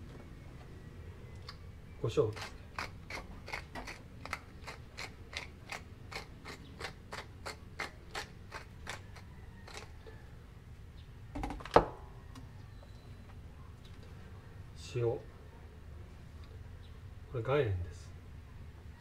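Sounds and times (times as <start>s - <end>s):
pepper mill grinding clicks: 2.4s - 9.9s.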